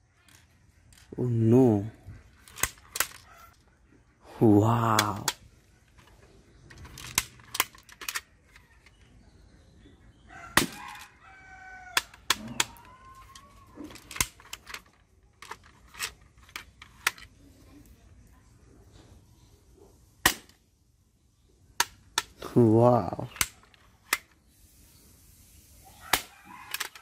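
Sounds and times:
toy cap gun clicks: 2.4 - 3.3, 4.9 - 5.5, 6.8 - 9.0, 11.9 - 16.2, 23.3 - 24.3, 26.1 - 27.0
rooster crowing: 10.3 - 14.1, 26.0 - 27.0.

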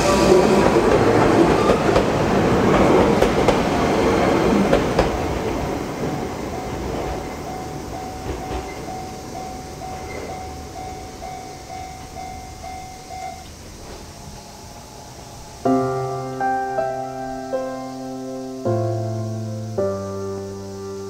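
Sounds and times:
piano music: 0.0 - 21.0
train rumble: 0.0 - 21.0
level crossing bell ringing: 7.4 - 13.5.

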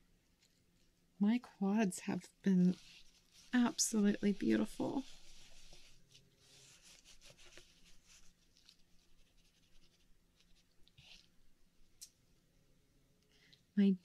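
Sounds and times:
soft rubbing and scraping: 2.5 - 11.4.

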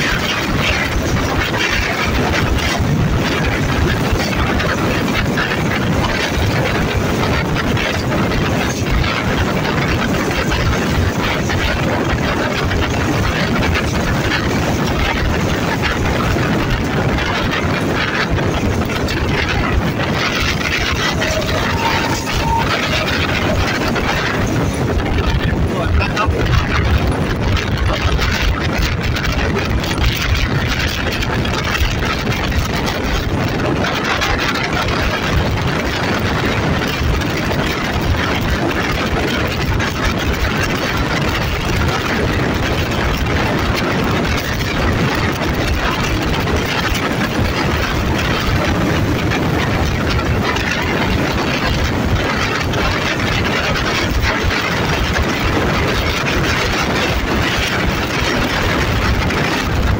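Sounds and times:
even rushing noise: 0.0 - 35.4
diesel locomotive engine running: 0.0 - 59.9.

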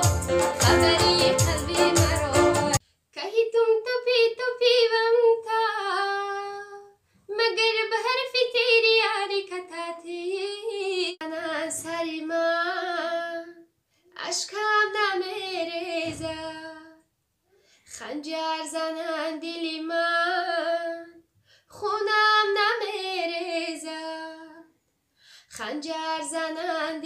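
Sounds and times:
woman singing solo: 0.0 - 2.8.

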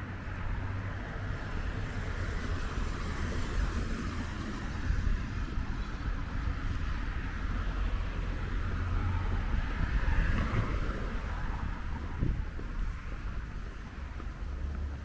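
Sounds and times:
cars passing on busy street: 0.0 - 15.0.

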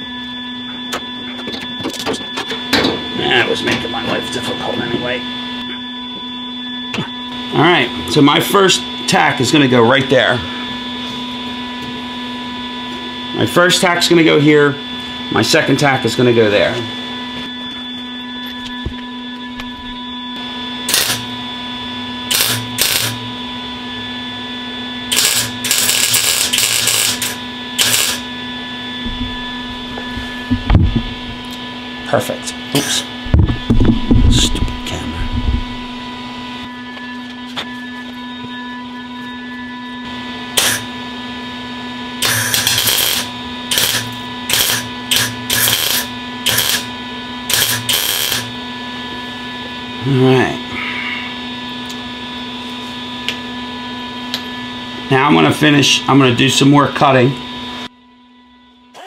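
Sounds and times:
steady low hum: 0.0 - 59.0
welder arc crackling: 20.9 - 21.3, 22.3 - 23.2, 25.1 - 28.3, 40.6 - 40.8, 42.2 - 46.9, 47.5 - 48.5.

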